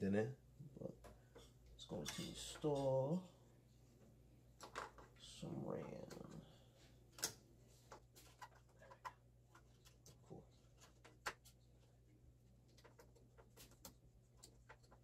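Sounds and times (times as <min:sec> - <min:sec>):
low steady hum: 0:00.0 - 0:15.0
hands handling computer parts: 0:04.6 - 0:05.2, 0:07.0 - 0:15.0.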